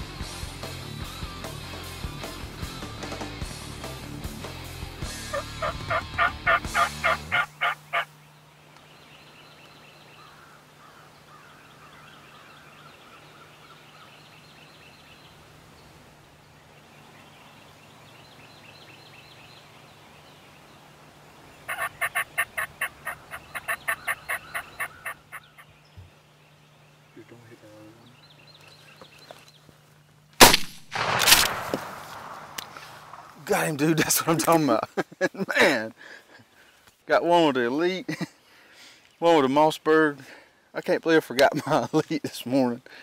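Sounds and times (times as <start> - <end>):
turkeys gobbling: 5.1 - 8.1, 21.6 - 25.7
faint songbird chirps: 7.0 - 30.3.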